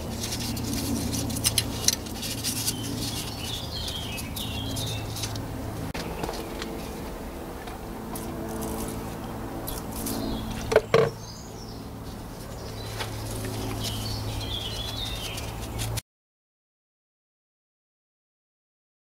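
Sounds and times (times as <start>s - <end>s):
sandpaper scratching metal: 0.0s - 5.4s, 12.4s - 16.0s.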